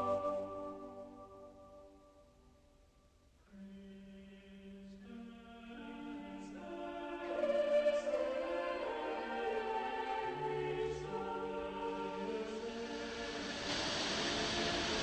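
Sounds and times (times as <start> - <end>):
choir singing held notes: 0.0 - 1.6, 5.7 - 15.0.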